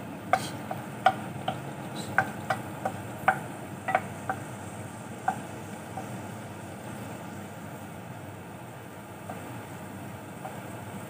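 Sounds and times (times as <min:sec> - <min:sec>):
frying hiss: 0:00.0 - 0:11.0
wooden spatula knocking on pan: 0:00.4 - 0:04.5, 0:05.2 - 0:06.2.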